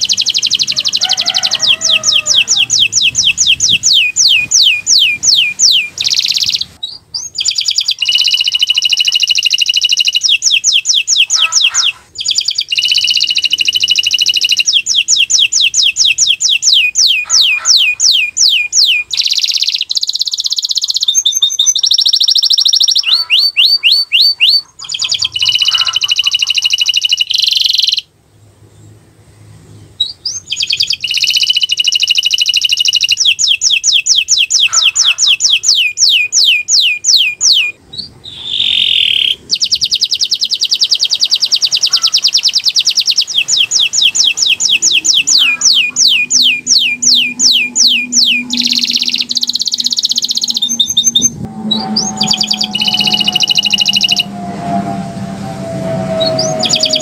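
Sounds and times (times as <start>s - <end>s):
canary singing: 0.0s - 28.1s, 30.0s - 57.0s.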